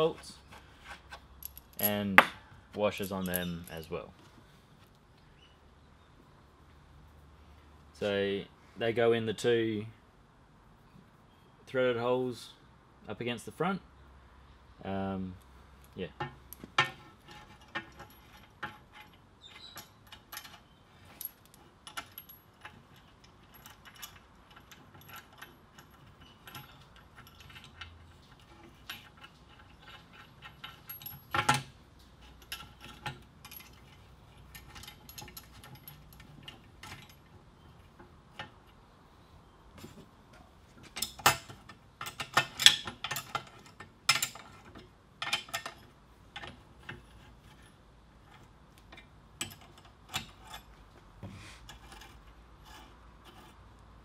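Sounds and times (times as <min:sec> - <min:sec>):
metal bolts clinking on frame: 0:01.4 - 0:04.0, 0:15.8 - 0:38.8, 0:40.8 - 0:47.7, 0:48.9 - 0:50.7.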